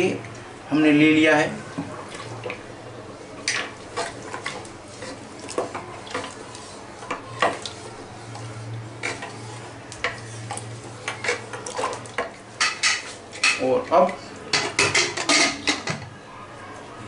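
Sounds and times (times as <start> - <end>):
spoon scraping metal pot: 9.0 - 13.6.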